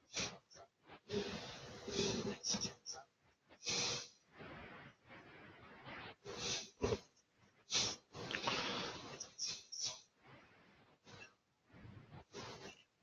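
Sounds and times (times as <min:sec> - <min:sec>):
person breathing and sniffing: 0:01.1 - 0:02.9, 0:03.6 - 0:04.2, 0:06.2 - 0:07.0, 0:07.7 - 0:10.0, 0:12.2 - 0:12.8.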